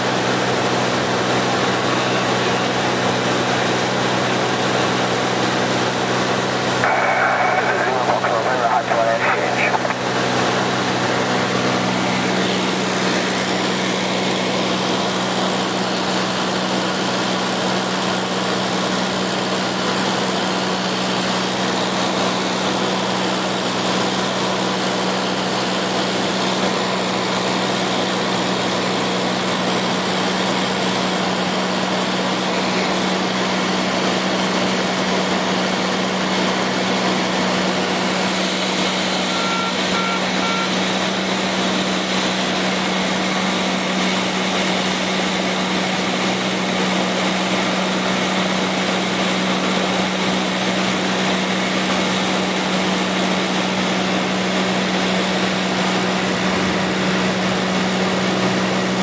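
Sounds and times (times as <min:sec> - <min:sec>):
aircraft engine hum: 0:00.9 - 0:17.0, 0:29.0 - 0:59.0.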